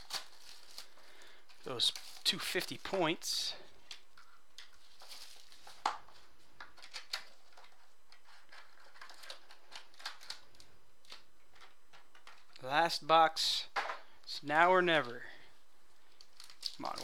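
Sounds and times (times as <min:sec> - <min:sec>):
foil packs rustling and crinkling: 0:00.0 - 0:11.7, 0:16.1 - 0:17.0.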